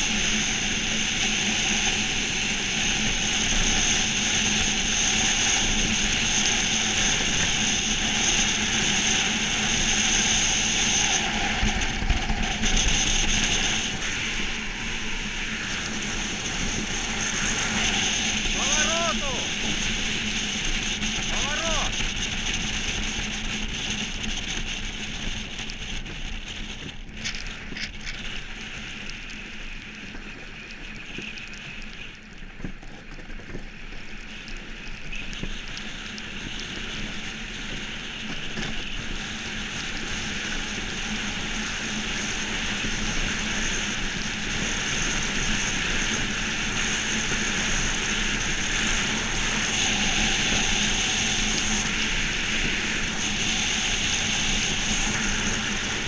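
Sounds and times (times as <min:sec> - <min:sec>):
runners hissing over ice: 0:04.8 - 0:56.0
wind on microphone: 0:34.5 - 0:56.0.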